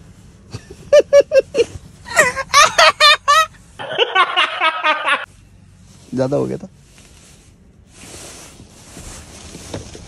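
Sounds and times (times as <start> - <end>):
people laughing: 2.2 - 5.3.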